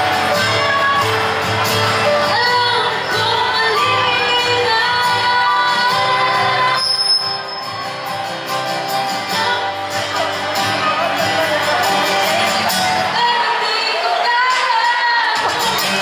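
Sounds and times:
pop song over loudspeakers: 0:00.0 - 0:16.0
woman singing: 0:02.0 - 0:06.8, 0:09.2 - 0:16.0.

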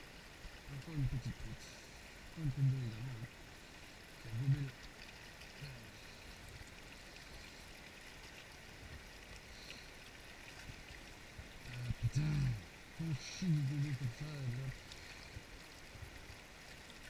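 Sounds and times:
stream flowing over rocks: 0:00.0 - 0:17.0.

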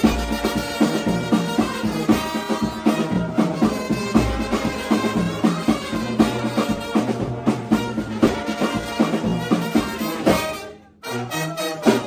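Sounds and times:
music with a steady beat: 0:00.0 - 0:12.0.

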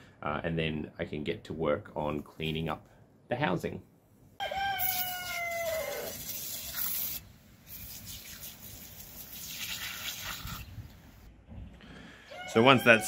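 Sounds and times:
aerosol can spraying: 0:05.7 - 0:10.6.

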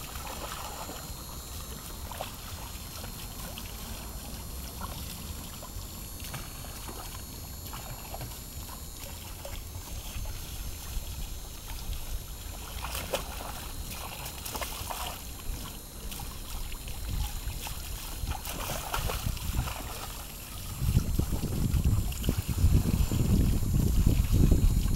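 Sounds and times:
low steady rumble: 0:00.0 - 0:24.9
water splashing in pool: 0:00.0 - 0:24.9.

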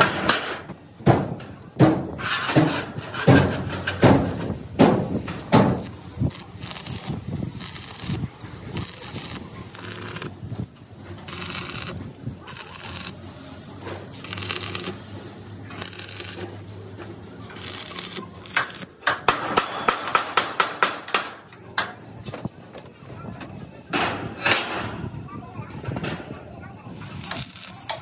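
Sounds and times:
welding arc crackling and sizzling: 0:05.2 - 0:19.0, 0:27.0 - 0:28.0.

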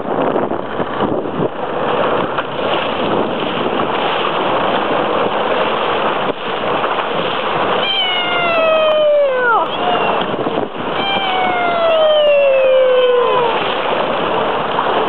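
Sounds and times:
jet ski engine and water rush: 0:00.0 - 0:15.0.

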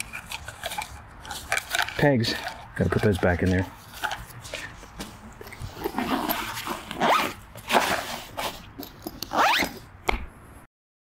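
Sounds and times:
tent pegs scraping: 0:00.0 - 0:09.9
nylon bags rustling: 0:05.5 - 0:09.8
zipper pulls: 0:05.5 - 0:09.9.

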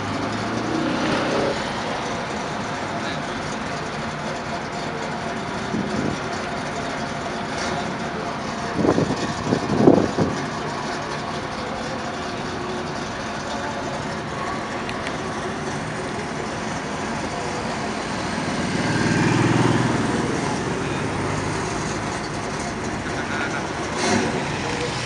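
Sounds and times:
traffic moving: 0:00.0 - 0:25.0
vehicle engines idling: 0:00.0 - 0:25.0
motorcycle riding past: 0:18.2 - 0:20.8.

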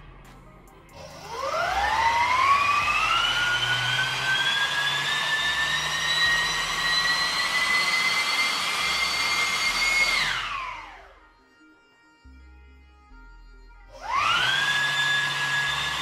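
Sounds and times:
electric fan air rush and whine: 0:01.0 - 0:11.0.

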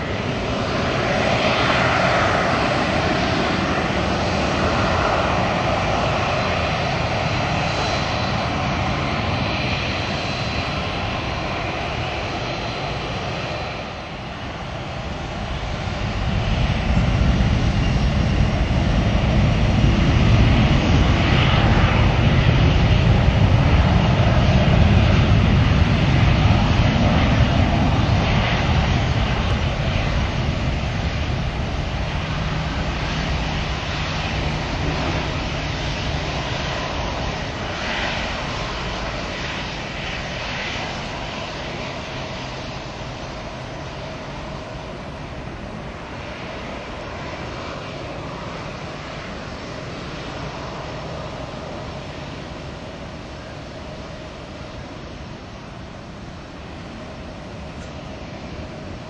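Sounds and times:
jet engines rumbling: 0:00.0 - 0:59.0.

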